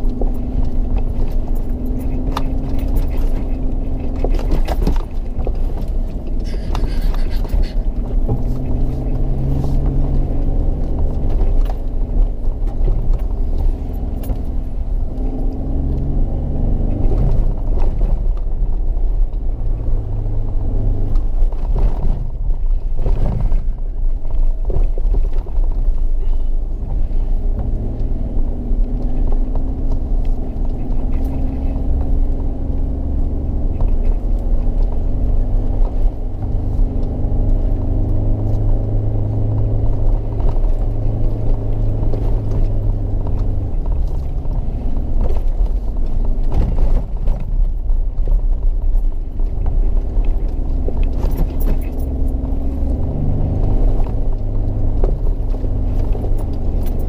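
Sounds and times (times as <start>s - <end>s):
bodywork knocking and rattling: 0.0s - 16.2s, 20.5s - 57.0s
off-road vehicle engine running: 0.0s - 57.0s.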